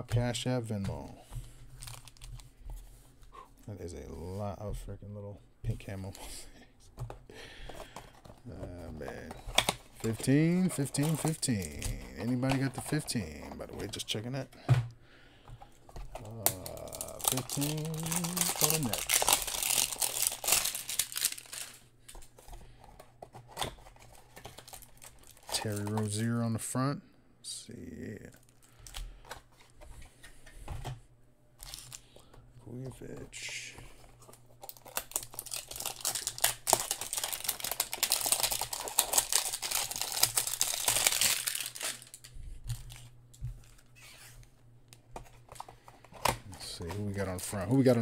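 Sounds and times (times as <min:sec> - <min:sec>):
cellophane wrapper crinkling: 0:01.7 - 0:02.6, 0:07.8 - 0:14.2, 0:16.0 - 0:22.8, 0:23.4 - 0:26.4, 0:31.6 - 0:32.3, 0:34.1 - 0:44.3
cards rustling and clicking: 0:07.0 - 0:14.6, 0:15.4 - 0:26.4, 0:31.6 - 0:48.0.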